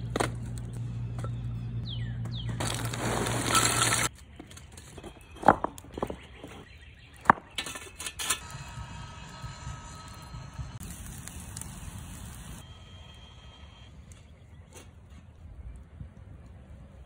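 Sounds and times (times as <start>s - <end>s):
charcoal pieces clinking: 2.6s - 4.1s
faint hum: 8.4s - 14.6s.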